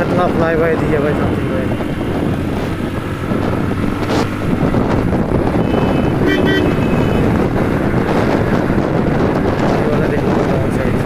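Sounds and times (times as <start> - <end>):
motorcycle engine running: 0.0 - 11.0
wind buffeting microphone: 0.0 - 11.0
horn toot: 5.6 - 7.4.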